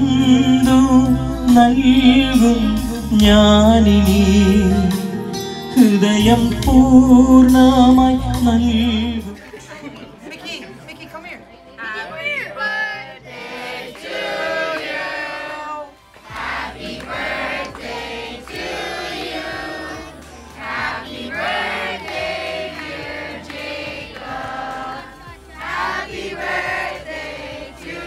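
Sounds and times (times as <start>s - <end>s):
adults and children singing: 0.0s - 4.9s, 13.1s - 28.0s.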